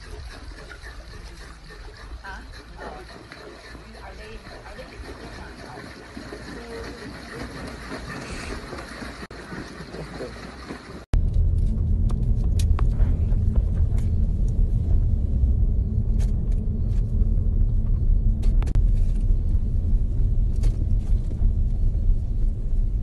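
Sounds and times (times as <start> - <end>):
road and engine rumble in car: 11.2 - 23.0.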